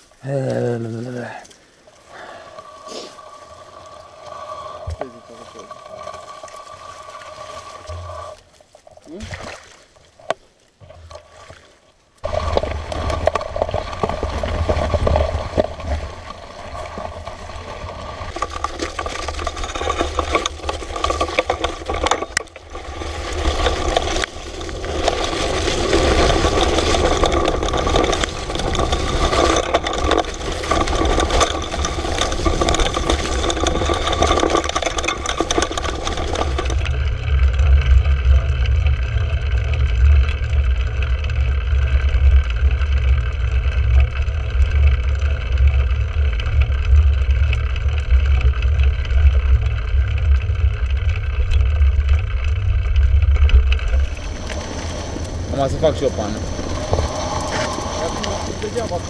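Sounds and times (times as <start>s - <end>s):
bike rattling over rough ground: 0.0s - 9.2s, 12.2s - 59.0s
wind buffeting microphone: 53.0s - 59.0s.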